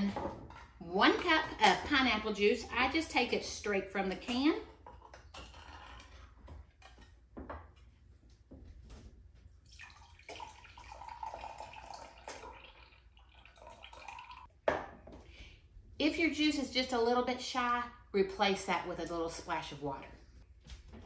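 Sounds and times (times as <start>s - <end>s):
juice trickling into a cup: 9.6s - 14.5s.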